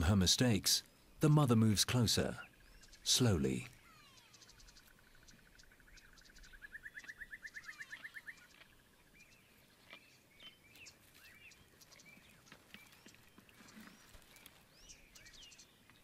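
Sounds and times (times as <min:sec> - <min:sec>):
bird trilling: 0:03.7 - 0:08.5.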